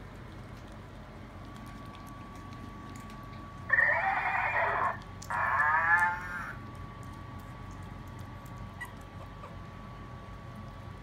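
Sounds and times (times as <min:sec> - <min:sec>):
puppy whining: 0:05.3 - 0:06.6, 0:08.5 - 0:10.0.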